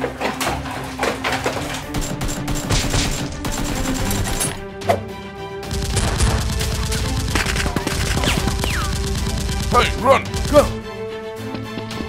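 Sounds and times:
action background music: 0:00.0 - 0:12.0
rapid automatic gunfire: 0:01.9 - 0:04.6, 0:05.7 - 0:10.8.

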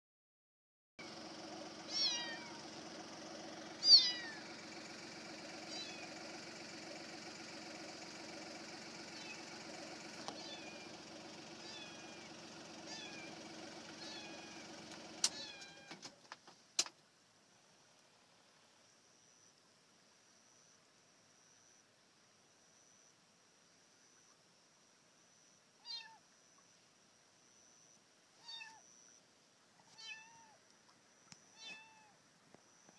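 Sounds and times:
car engine idling: 0:01.0 - 0:16.2
kittens meowing: 0:01.9 - 0:02.7, 0:03.8 - 0:04.5, 0:05.7 - 0:06.1, 0:09.2 - 0:09.5, 0:10.4 - 0:10.9, 0:11.6 - 0:13.4, 0:14.0 - 0:14.7, 0:15.3 - 0:16.0, 0:25.8 - 0:26.2, 0:28.4 - 0:28.8, 0:29.8 - 0:30.6, 0:31.6 - 0:32.2
sharp clicks: 0:14.9 - 0:17.0.

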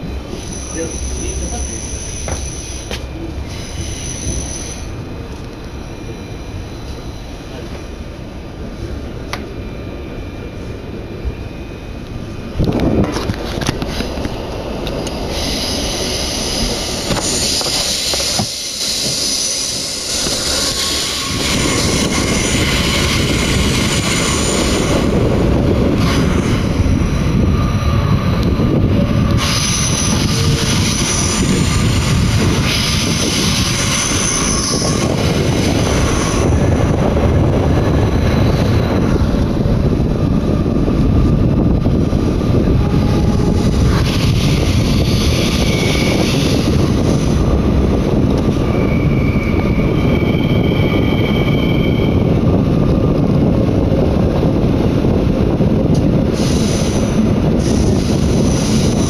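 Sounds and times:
train wheels rumbling: 0:00.0 - 0:59.0
high-pitched wheel squeal: 0:00.3 - 0:04.9, 0:15.4 - 0:25.1, 0:29.3 - 0:36.7, 0:42.6 - 0:47.5, 0:48.4 - 0:52.4.

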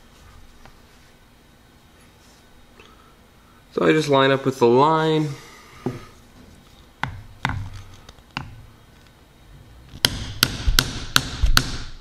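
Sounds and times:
mallet striking punch through leather: 0:10.0 - 0:12.0.

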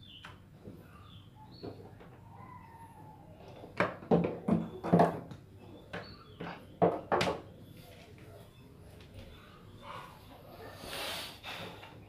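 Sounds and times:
plastic knocks and clicks: 0:03.6 - 0:07.4.

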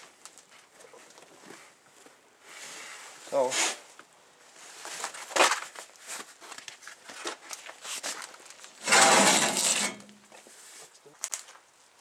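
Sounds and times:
scraping rush: 0:08.8 - 0:10.1.

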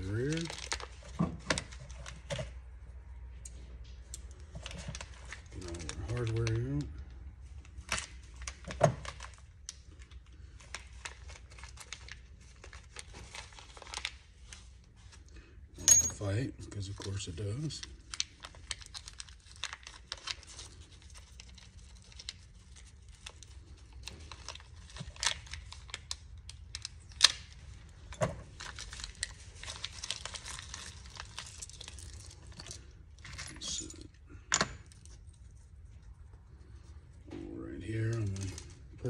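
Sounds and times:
plastic bag crinkling and tearing: 0:00.0 - 0:02.3, 0:04.6 - 0:06.9, 0:07.7 - 0:15.0, 0:16.9 - 0:33.2.

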